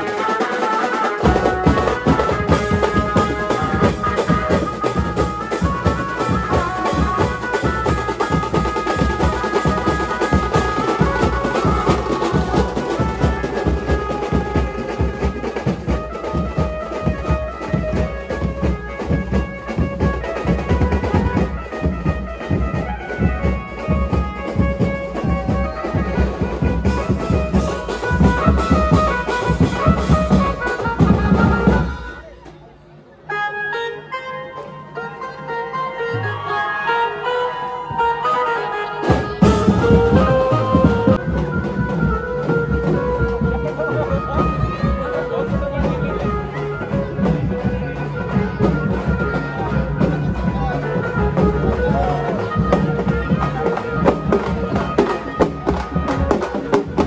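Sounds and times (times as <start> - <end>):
fast heavy drum beat: 0.0 - 31.9, 39.1 - 43.9.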